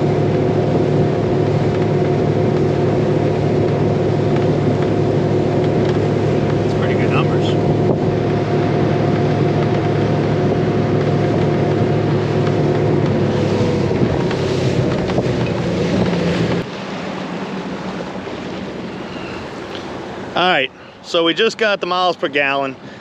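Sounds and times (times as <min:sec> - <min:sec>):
wind noise: 0:00.0 - 0:16.7
outboard motor running: 0:00.0 - 0:23.0
water noise: 0:00.0 - 0:23.0.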